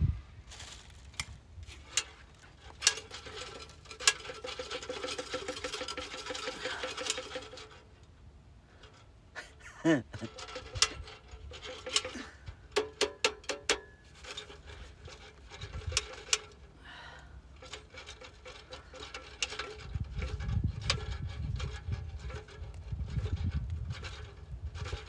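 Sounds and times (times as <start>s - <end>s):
metal stove clinking and rattling: 1.7s - 7.9s, 10.2s - 16.8s, 17.5s - 25.0s.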